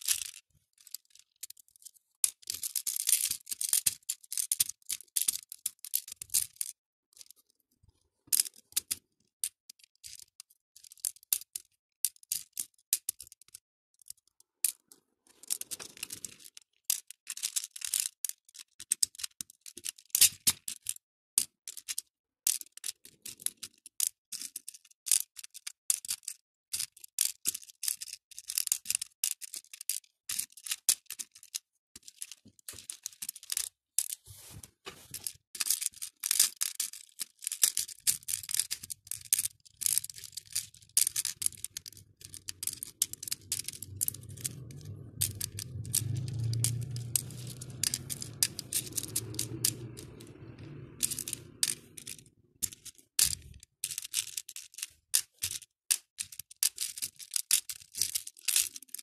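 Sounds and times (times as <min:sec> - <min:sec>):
plastic beads clicking: 0:00.0 - 0:01.6, 0:02.2 - 0:07.3, 0:15.4 - 0:20.9, 0:27.2 - 0:34.2, 0:35.2 - 0:59.0
low rumble: 0:42.4 - 0:52.6.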